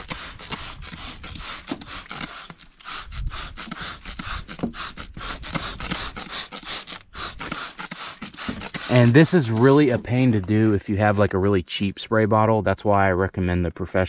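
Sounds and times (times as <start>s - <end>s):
spray bottle hissing: 1.4s - 10.0s.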